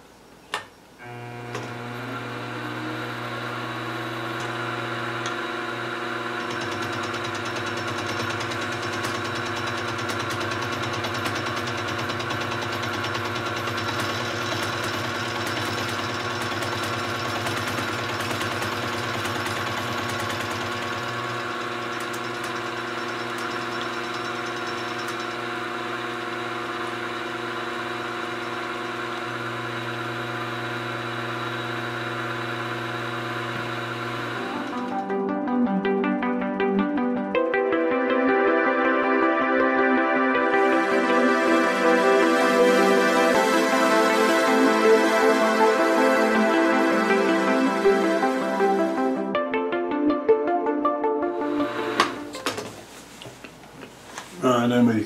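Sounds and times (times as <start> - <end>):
milling machine motor hum: 1.0 - 35.1, 51.4 - 52.5.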